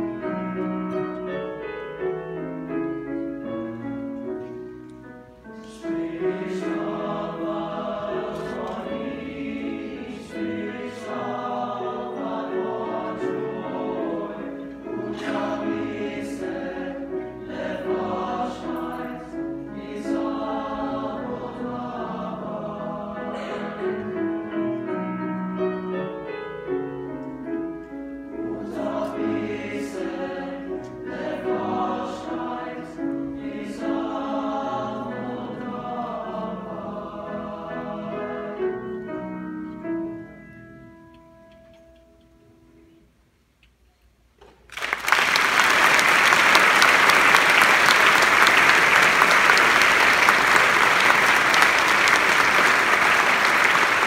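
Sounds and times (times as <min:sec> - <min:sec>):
piano accompaniment: 0:00.0 - 0:42.9, 0:45.1 - 0:54.0
choir singing in parts: 0:05.6 - 0:25.2, 0:28.2 - 0:39.4.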